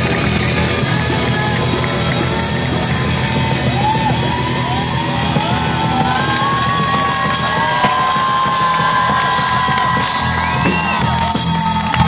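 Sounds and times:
drum kit: 0.0s - 12.0s
electric guitars: 0.0s - 12.0s.

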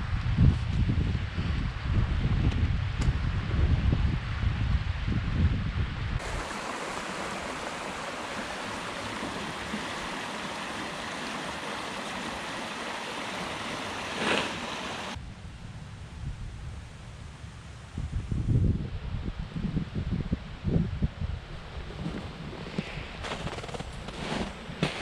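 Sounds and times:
wind buffeting microphone: 0.0s - 25.0s
river water rushing: 6.2s - 15.2s.

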